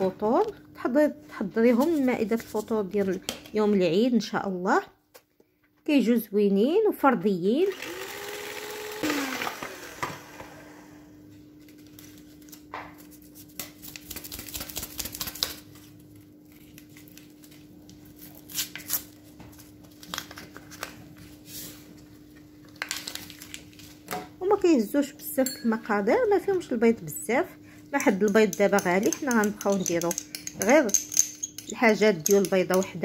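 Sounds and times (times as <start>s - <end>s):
hand mixer and bowl clicks: 9.0s - 10.6s
faint steady hum: 19.6s - 33.0s.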